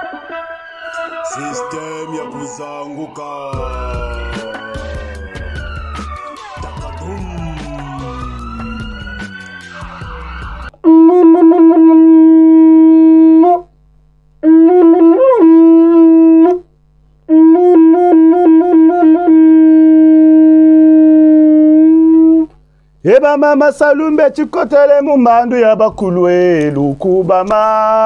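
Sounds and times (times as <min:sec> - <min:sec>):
long wooden horn blown: 0:00.0 - 0:13.7, 0:14.4 - 0:16.7, 0:17.3 - 0:22.6.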